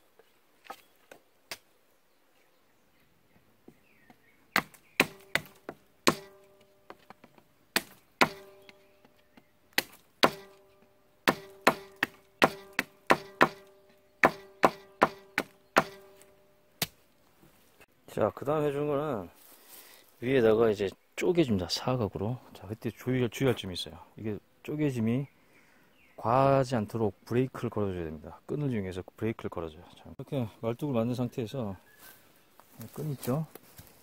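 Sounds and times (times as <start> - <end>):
hatchet chopping wood: 4.5 - 7.1, 7.7 - 8.8, 9.7 - 17.0.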